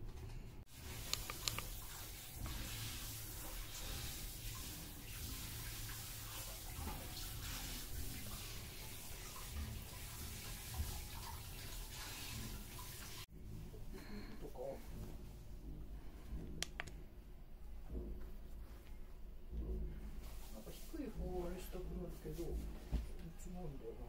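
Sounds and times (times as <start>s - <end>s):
running water: 0.7s - 13.3s
sharp clicks: 1.1s - 1.7s, 16.6s - 17.0s.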